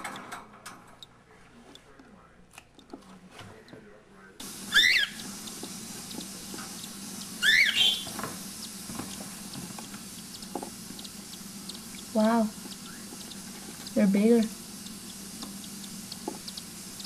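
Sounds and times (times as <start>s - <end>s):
steady hiss: 4.4s - 17.0s
cockatiel whistled calls: 4.6s - 5.5s, 7.4s - 8.8s, 12.7s - 13.3s.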